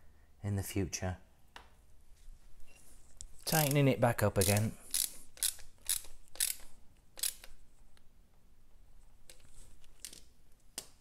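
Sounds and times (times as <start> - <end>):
ratchet wrench clicking: 4.4 - 7.5.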